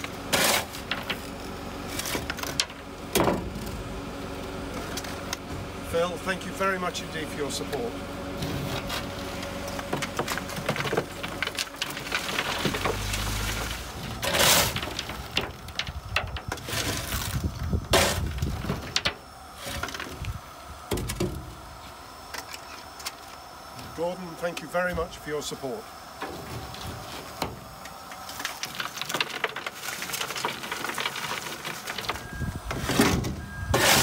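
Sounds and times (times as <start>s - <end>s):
lumps of coal clattering: 0.0s - 3.9s, 4.7s - 20.3s, 26.2s - 34.0s
shovel scraping through coal: 0.3s - 1.0s, 11.4s - 15.5s, 16.6s - 18.9s, 28.2s - 34.0s.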